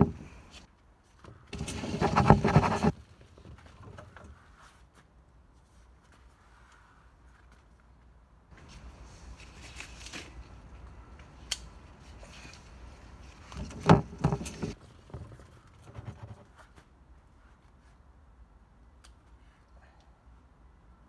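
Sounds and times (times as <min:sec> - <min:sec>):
leaves and vines rustling: 0:05.7 - 0:15.6
plant stems clicking and snapping: 0:08.6 - 0:13.8.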